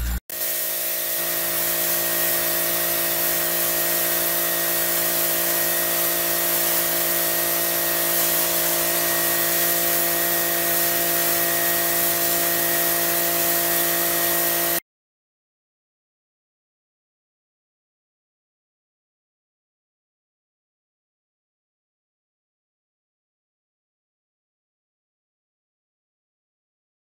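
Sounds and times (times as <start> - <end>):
machine humming: 0.0 - 14.8
pressure washer spraying concrete: 0.0 - 14.8.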